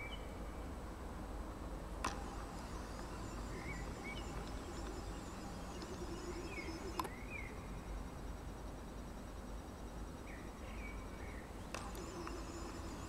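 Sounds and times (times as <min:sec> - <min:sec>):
songbird singing: 0:00.0 - 0:00.7, 0:02.1 - 0:13.0
steady low hum: 0:00.0 - 0:13.0
sharp clicks: 0:02.0 - 0:07.3, 0:11.7 - 0:13.0.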